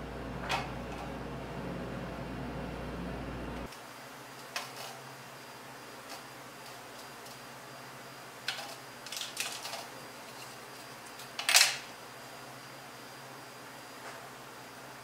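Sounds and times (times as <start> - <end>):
clatter on metal tray: 4.5 - 5.0, 8.5 - 10.6, 11.2 - 11.8.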